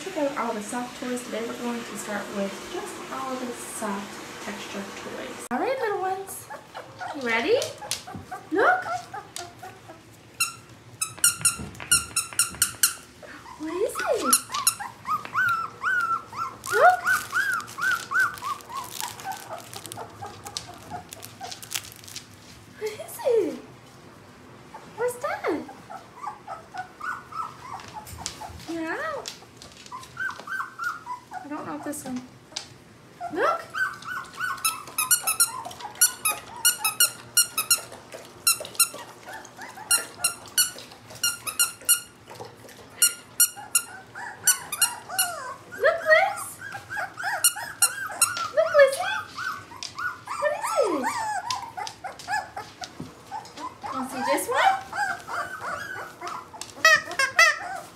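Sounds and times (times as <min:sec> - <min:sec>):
puppy whimpering: 0:05.4 - 0:22.1, 0:24.7 - 0:57.9
second puppy whining: 0:07.8 - 0:21.8, 0:25.9 - 0:28.7, 0:29.8 - 0:31.5, 0:33.2 - 0:42.2, 0:43.0 - 0:57.9.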